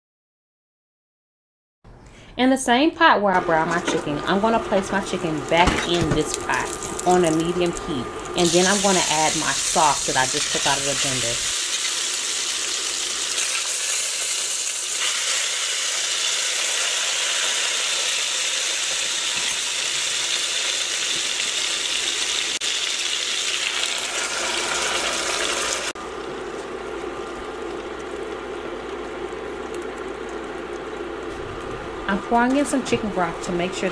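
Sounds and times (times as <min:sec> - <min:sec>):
chicken sizzling in hot oil: 0:06.3 - 0:31.3.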